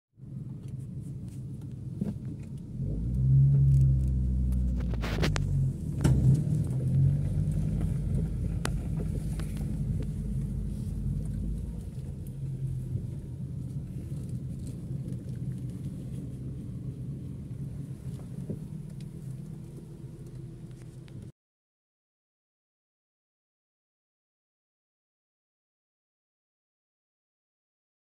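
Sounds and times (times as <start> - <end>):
car engine rumbling: 0.2 - 21.3.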